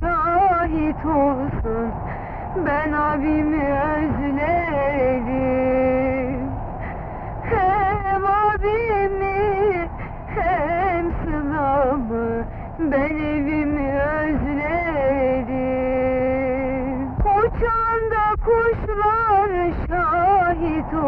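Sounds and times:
woman singing: 0.0 - 21.0.

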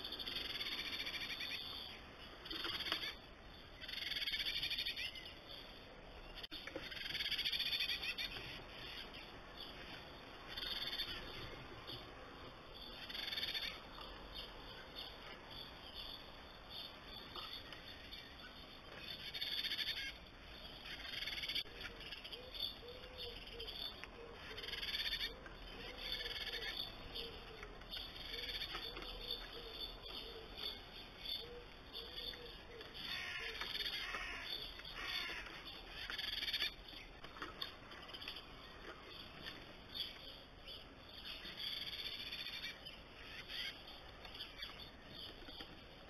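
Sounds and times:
bird harsh alarm calls: 19.2 - 20.2, 24.4 - 27.4, 31.2 - 36.8, 41.3 - 43.8.

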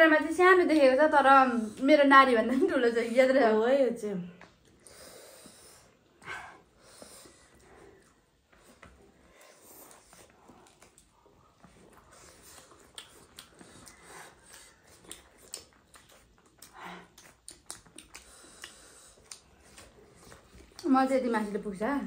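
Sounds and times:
chewing and lip smacks: 6.9 - 21.1.

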